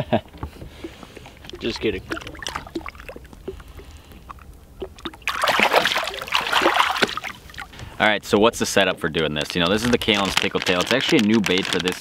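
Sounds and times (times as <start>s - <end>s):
fish splashing into water: 0.7s - 7.7s.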